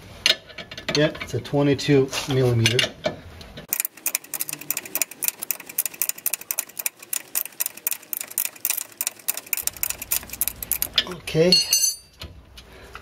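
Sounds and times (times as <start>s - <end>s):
ratcheting wrench clicking: 3.7s - 11.1s.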